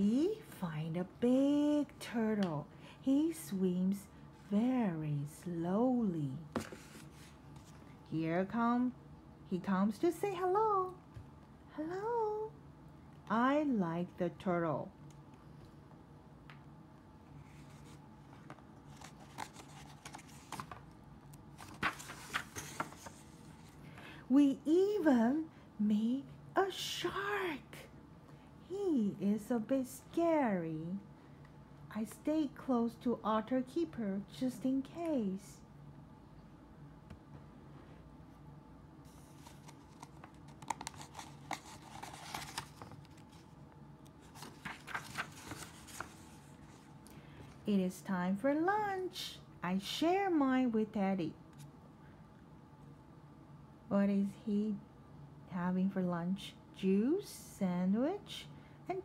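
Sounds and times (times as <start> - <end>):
paper pages rustling: 6.6 - 8.0, 17.4 - 20.9, 21.5 - 23.8, 39.1 - 43.6, 44.2 - 46.9.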